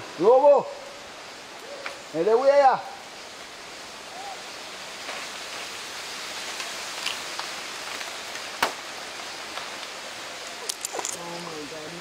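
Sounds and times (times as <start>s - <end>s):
rainforest background hiss: 0.0s - 12.0s
faint animal call: 4.1s - 4.5s.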